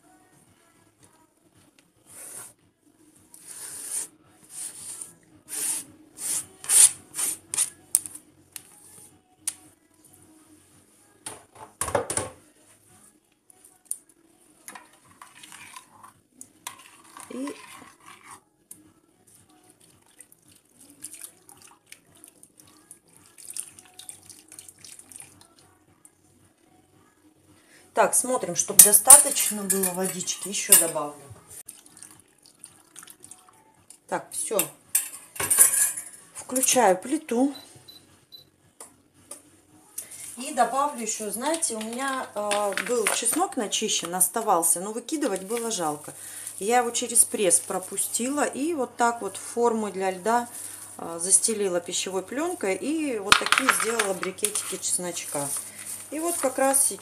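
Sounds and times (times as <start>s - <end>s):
liquid trickling and splashing: 19.8s - 25.5s, 31.7s - 33.4s.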